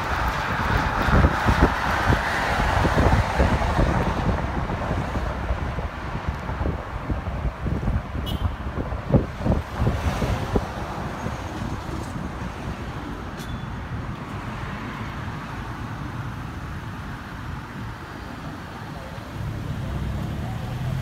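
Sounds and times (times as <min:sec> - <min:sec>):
wind buffeting microphone: 0:00.0 - 0:14.4
road and traffic noise: 0:00.0 - 0:21.0.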